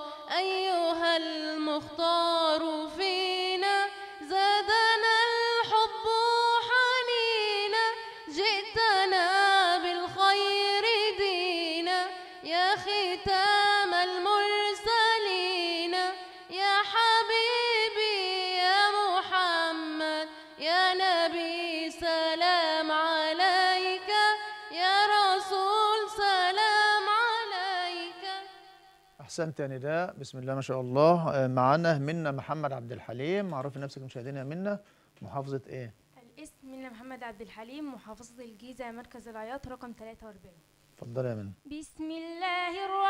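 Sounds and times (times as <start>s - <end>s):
woman singing unaccompanied: 0.0s - 28.8s, 41.7s - 43.0s.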